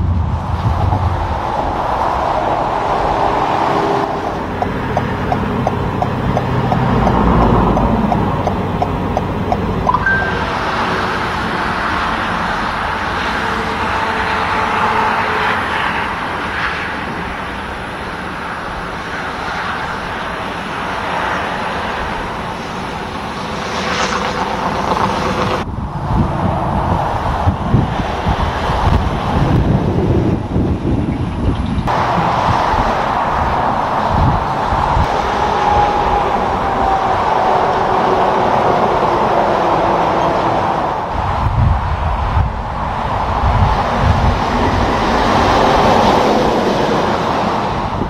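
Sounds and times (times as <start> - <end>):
road traffic passing: 0.0 - 48.0
rapid light ticks: 4.5 - 9.9.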